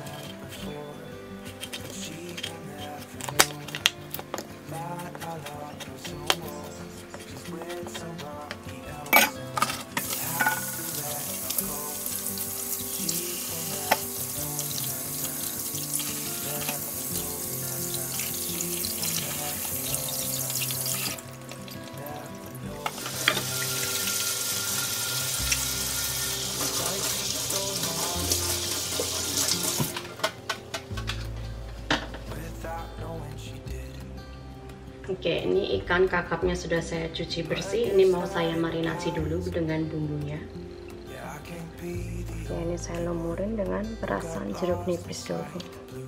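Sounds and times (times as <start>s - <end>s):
tap water running into steel sink: 10.0s - 21.2s, 22.8s - 30.1s.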